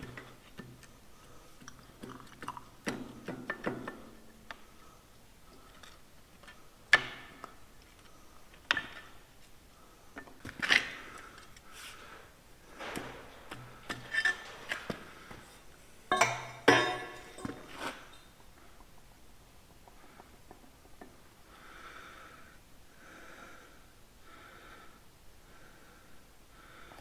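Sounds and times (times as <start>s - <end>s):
spanner clinking on metal: 16.1s - 18.3s.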